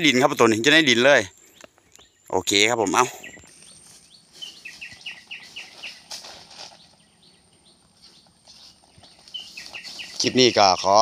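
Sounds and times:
rustles in dry leaf litter: 0:03.7 - 0:07.0, 0:08.0 - 0:11.0.

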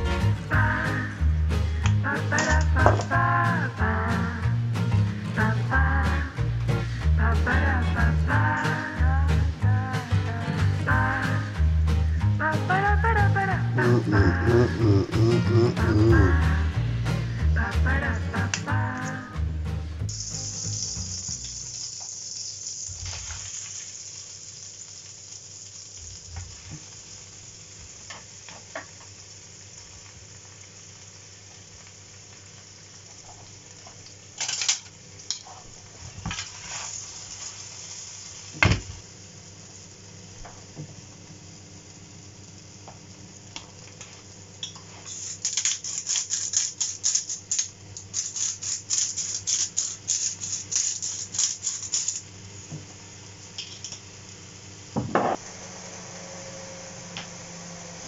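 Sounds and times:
mushrooms sizzling in a frying pan: 0:00.0 - 0:13.2, 0:13.8 - 0:58.0
pepper mill grinding: 0:01.8 - 0:03.2, 0:13.8 - 0:16.4, 0:20.1 - 0:30.1, 0:42.6 - 0:52.3.

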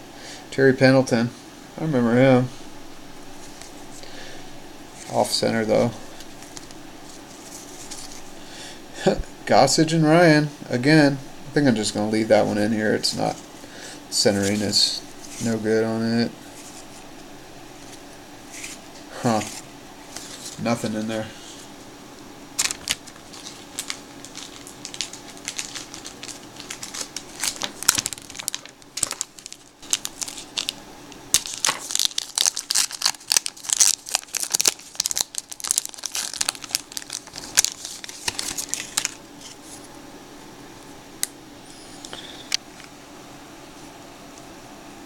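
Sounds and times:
plastic wrapper crackling: 0:22.6 - 0:39.8.

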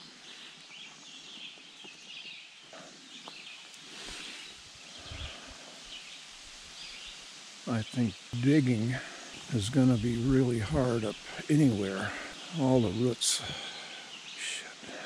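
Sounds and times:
footsteps on leaf-littered trail: 0:00.0 - 0:06.1
birds singing: 0:00.0 - 0:15.0.

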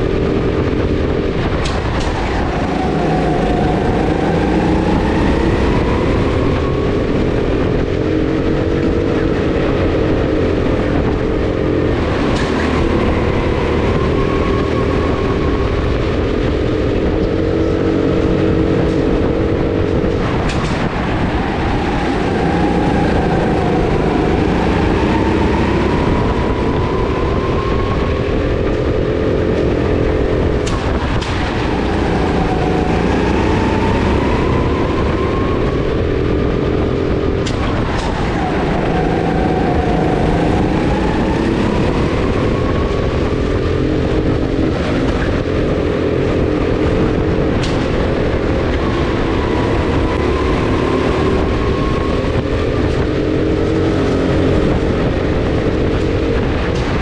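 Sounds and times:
go-kart motor revving: 0:00.0 - 0:57.0.

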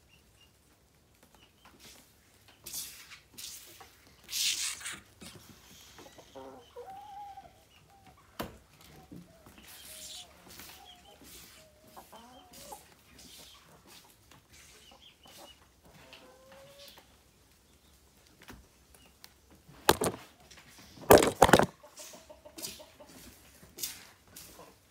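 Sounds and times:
chickens clucking: 0:04.8 - 0:17.2, 0:19.7 - 0:23.7.

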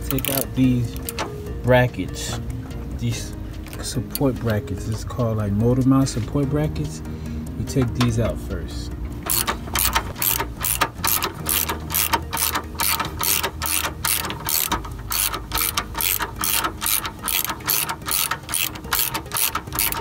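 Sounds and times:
socket ratchet clicking: 0:00.0 - 0:01.4, 0:09.2 - 0:20.0.

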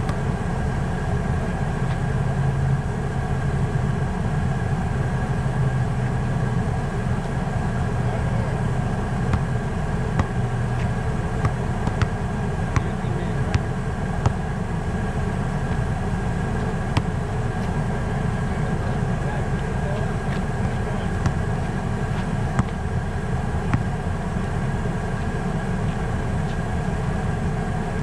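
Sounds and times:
basketball bouncing on asphalt: 0:00.0 - 0:00.3, 0:09.3 - 0:14.6, 0:16.6 - 0:17.2, 0:22.2 - 0:23.0, 0:23.7 - 0:24.0
low engine-like hum: 0:00.0 - 0:28.0.

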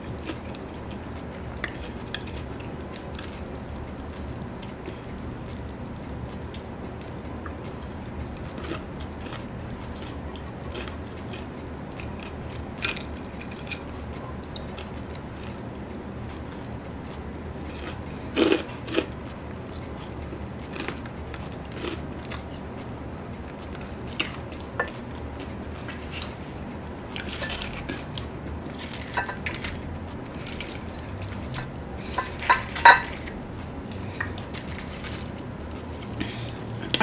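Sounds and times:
person chewing crispy chicken: 0:00.0 - 0:37.0.

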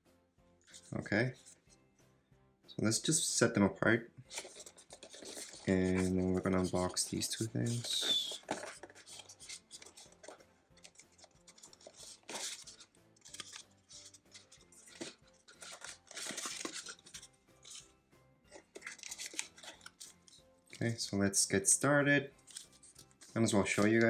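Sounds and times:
boxes being handled clicks: 0:04.3 - 0:17.8, 0:18.5 - 0:20.8.

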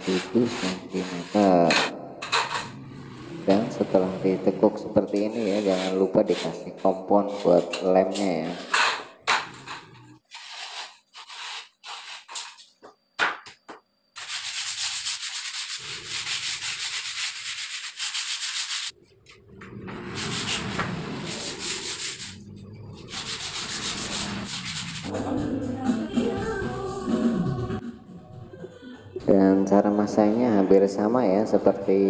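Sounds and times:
board edge scraping: 0:07.3 - 0:12.6, 0:20.0 - 0:22.4.

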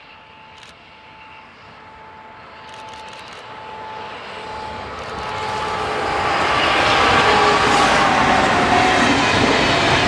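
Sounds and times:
electric locomotive whine: 0:00.0 - 0:10.0
train wheels on rails: 0:00.0 - 0:10.0.

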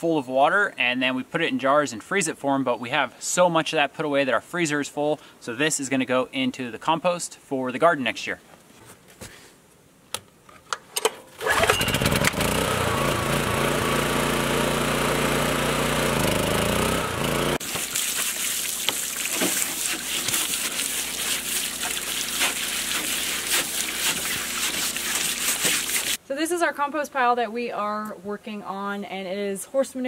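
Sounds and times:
generator engine running: 0:11.4 - 0:17.6.

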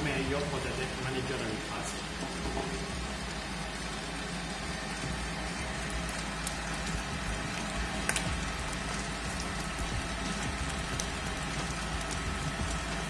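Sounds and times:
dough mixer motor humming: 0:00.0 - 0:13.0
dough slapping and churning: 0:00.0 - 0:13.0.

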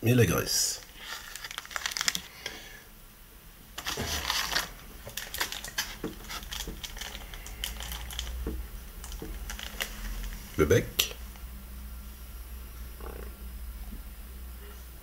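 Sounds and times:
plastic packaging crinkling: 0:00.8 - 0:02.6, 0:03.8 - 0:10.6.

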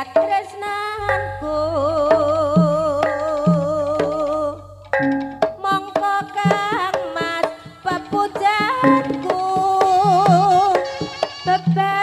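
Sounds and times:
hand drum strokes: 0:00.0 - 0:12.0
wavering melody line: 0:01.0 - 0:05.6.

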